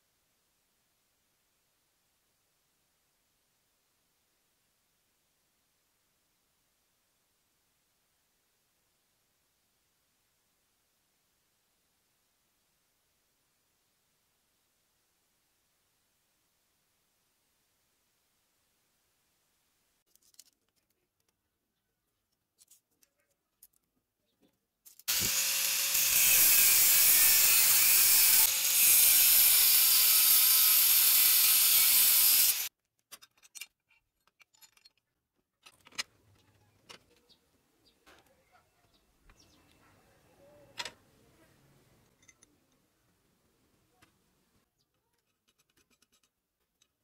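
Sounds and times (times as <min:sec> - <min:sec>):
angle grinder cutting steel: 0:25.1 - 0:32.7
clicks of handling metal: 0:33.0 - 0:37.3, 0:42.1 - 0:42.5, 0:44.9 - 0:47.0.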